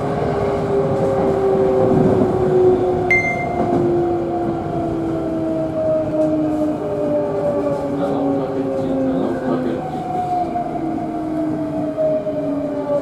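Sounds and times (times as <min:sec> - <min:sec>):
train running noise: 0:00.0 - 0:13.0
short high beep: 0:03.1 - 0:03.7.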